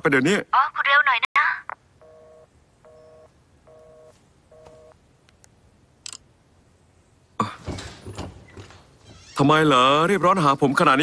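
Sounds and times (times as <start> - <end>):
telephone busy tone beeps: 2.0 - 5.0.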